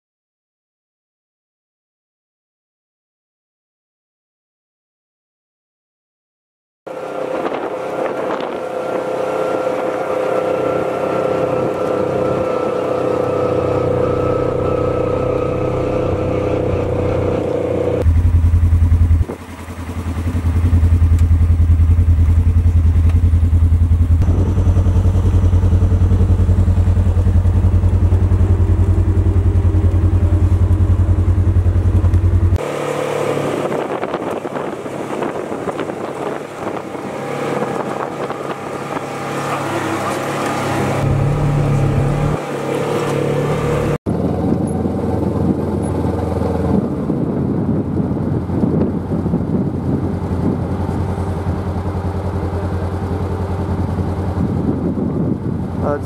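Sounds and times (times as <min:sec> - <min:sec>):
engine running with a whine: 0:06.9 - 0:56.0
deep engine drone inside cab: 0:41.0 - 0:42.4.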